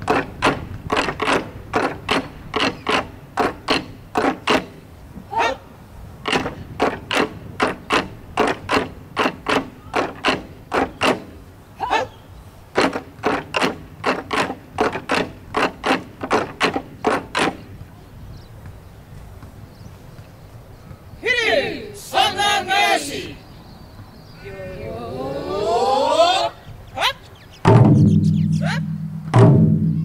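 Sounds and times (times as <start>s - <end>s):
taiko drums striking: 27.6s - 30.0s.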